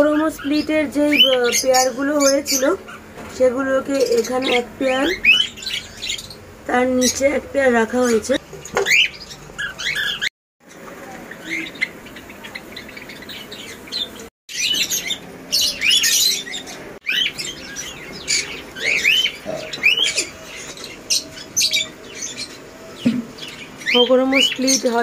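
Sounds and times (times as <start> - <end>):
caged birds chirping: 0.0 - 25.0.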